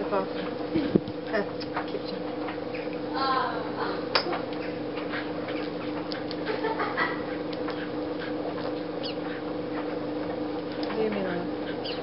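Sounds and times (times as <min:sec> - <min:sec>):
steady two-tone hum: 0:00.0 - 0:12.0
dog panting and snuffling: 0:07.2 - 0:09.5.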